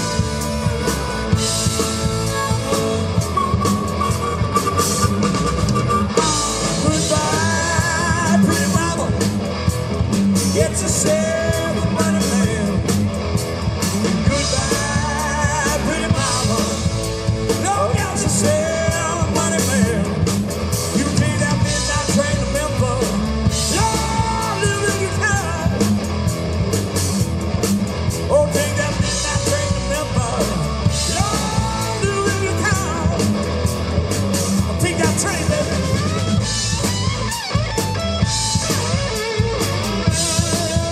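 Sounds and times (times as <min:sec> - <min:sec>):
person singing: 0:00.0 - 0:09.4, 0:10.4 - 0:13.0, 0:14.2 - 0:20.3, 0:20.9 - 0:26.0, 0:28.3 - 0:33.6
bass guitar: 0:00.0 - 0:40.9
drum kit: 0:00.0 - 0:40.9
electric guitars: 0:00.0 - 0:40.9.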